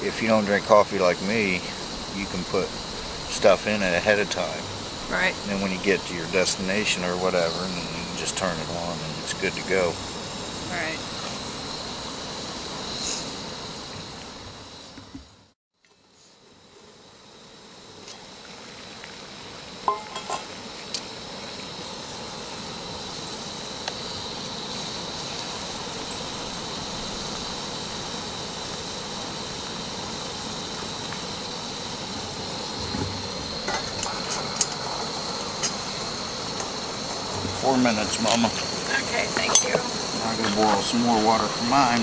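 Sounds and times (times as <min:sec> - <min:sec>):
camp stove burner hissing: 0:00.0 - 0:42.0
metal pot and cup clinking: 0:19.9 - 0:20.5.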